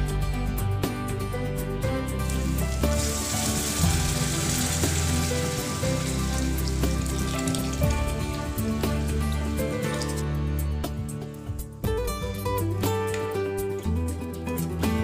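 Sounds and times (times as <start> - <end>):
background music: 0.0 - 15.0
water sizzling in hot pan: 2.1 - 10.2.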